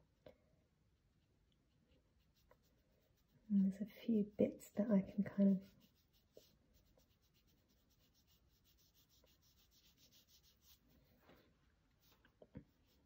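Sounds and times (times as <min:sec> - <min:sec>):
brush scratching across paper: 0:02.1 - 0:11.4, 0:12.0 - 0:13.0.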